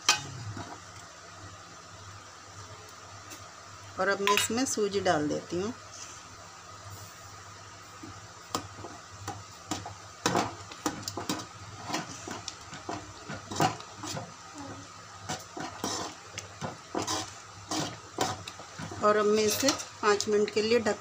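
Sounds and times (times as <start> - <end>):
spoon scraping metal pot: 15.3 - 16.2, 16.9 - 18.5.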